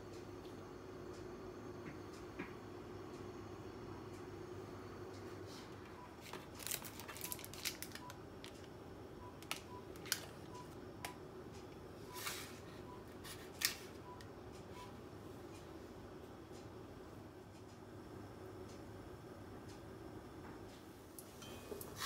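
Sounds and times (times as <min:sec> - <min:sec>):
steady low hum: 0:00.0 - 0:22.0
baking paper crinkling: 0:06.2 - 0:08.7.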